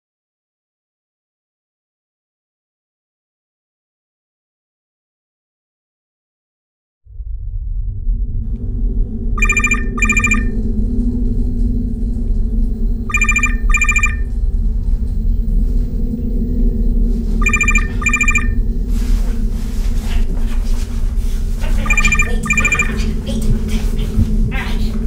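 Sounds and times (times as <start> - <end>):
telephone ringing: 9.4 - 10.5, 13.1 - 14.3, 17.4 - 18.6, 21.8 - 23.0.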